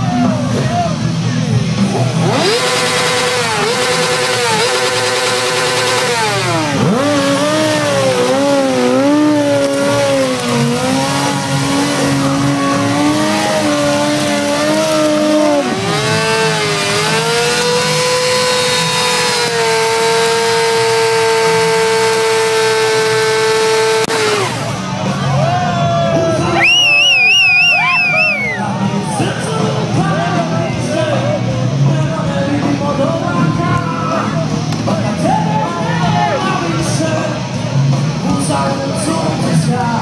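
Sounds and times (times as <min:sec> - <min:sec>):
motorcycle engine revving: 0:00.0 - 0:25.3.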